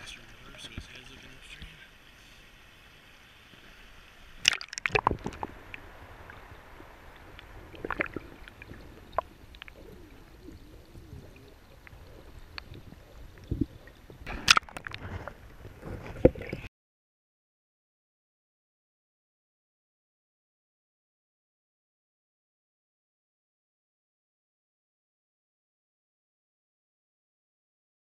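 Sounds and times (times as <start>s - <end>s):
muffled underwater sloshing: 0.0s - 16.7s.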